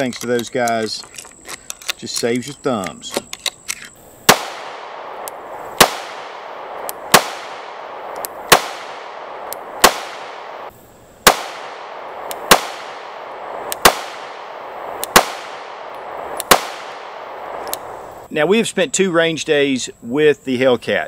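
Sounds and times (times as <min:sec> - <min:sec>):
pistol shots: 0:04.3 - 0:17.9.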